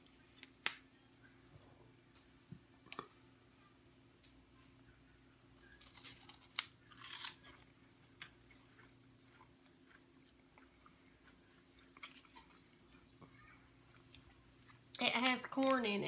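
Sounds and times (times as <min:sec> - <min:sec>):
crunchy snack being chewed: 0:05.6 - 0:07.6, 0:08.4 - 0:13.1.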